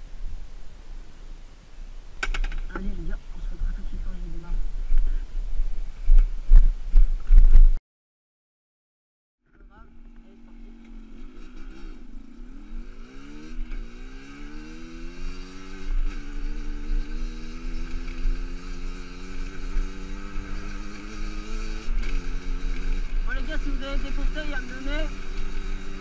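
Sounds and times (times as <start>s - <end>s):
low wind rumble: 0.0s - 7.8s, 9.6s - 26.0s
motorcycle engine pulling away: 9.5s - 26.0s.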